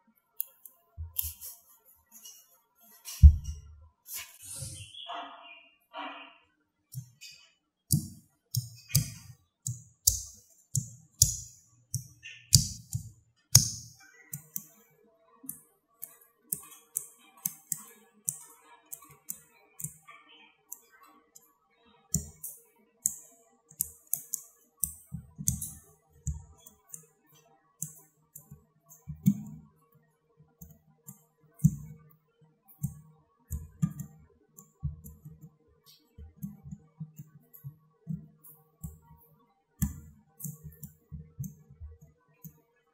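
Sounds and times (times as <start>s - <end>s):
magnetic balls clicking: 7.0s - 14.8s, 15.5s - 20.1s, 22.1s - 29.7s, 30.6s - 32.0s, 32.8s - 39.2s, 39.8s - 42.6s.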